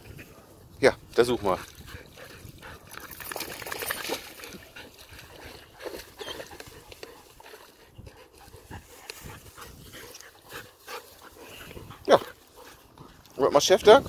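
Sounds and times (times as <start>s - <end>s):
dog shaking water from coat: 3.0s - 4.6s.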